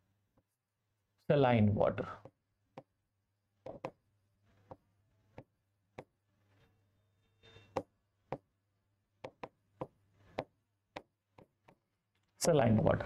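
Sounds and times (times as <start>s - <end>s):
pen tapping on writing board: 3.6s - 4.0s, 4.6s - 6.2s, 7.8s - 8.5s, 9.2s - 11.8s.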